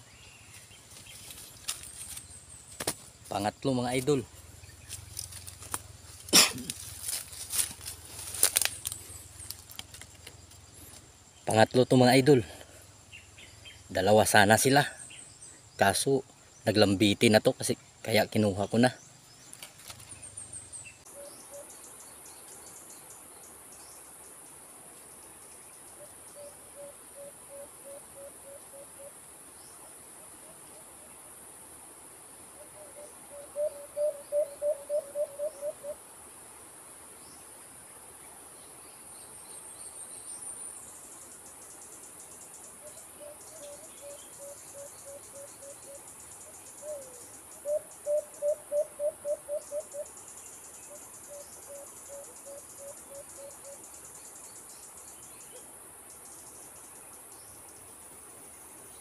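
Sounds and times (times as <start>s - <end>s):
high insect drone: 0.0s - 59.0s
doves cooing: 32.6s - 36.0s, 42.8s - 50.1s.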